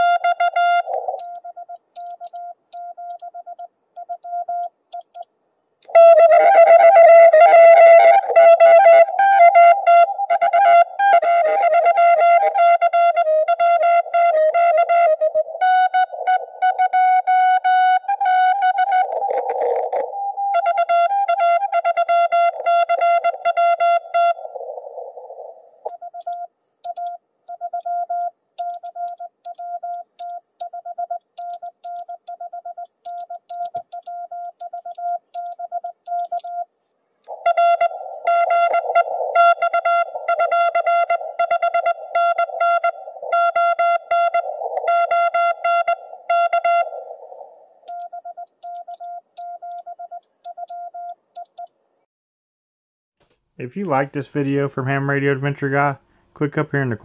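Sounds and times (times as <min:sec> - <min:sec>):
morse code tone: 0:00.0 - 0:05.2, 0:25.8 - 0:36.7, 0:37.3 - 0:47.1, 0:47.9 - 0:51.7.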